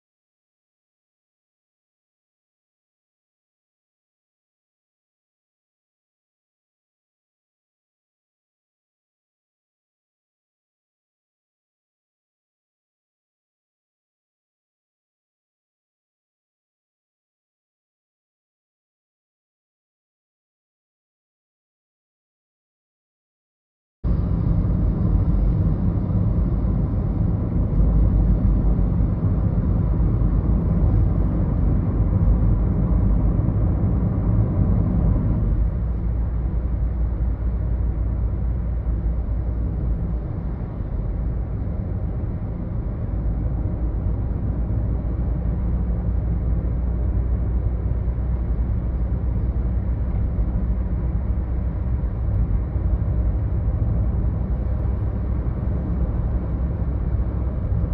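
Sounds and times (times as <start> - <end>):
car road noise rumble: 24.0 - 57.9.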